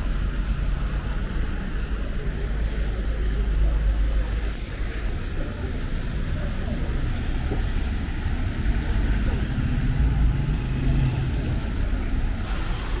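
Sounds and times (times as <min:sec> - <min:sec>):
heavy rain hissing: 0:09.0 - 0:13.0.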